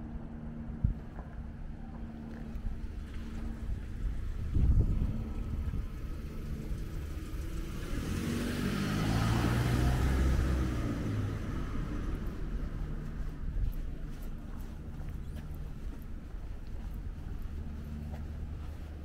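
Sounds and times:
car passing by: 2.5 - 15.8.

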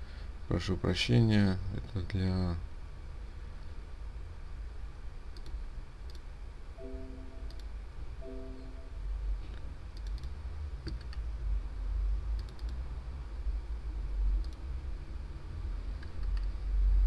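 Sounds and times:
low steady rumble: 0.0 - 17.0
computer mouse clicking: 5.4 - 6.3, 10.0 - 11.2, 12.4 - 12.8, 14.4 - 14.7, 16.0 - 16.6
short hum: 6.8 - 9.5.

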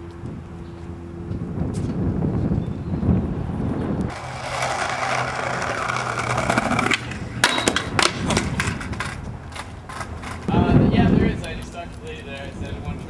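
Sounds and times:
skateboard wheels rolling on concrete: 3.2 - 13.0
skateboard clacking on pavement: 4.1 - 10.5.

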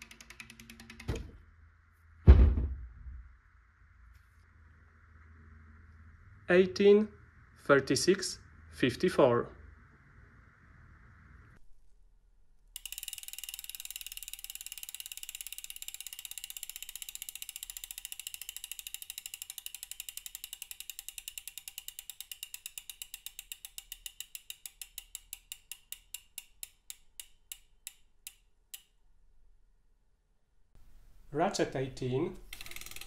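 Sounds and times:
bicycle freewheel clicking: 0.0 - 1.1, 12.8 - 28.9, 32.5 - 33.0.

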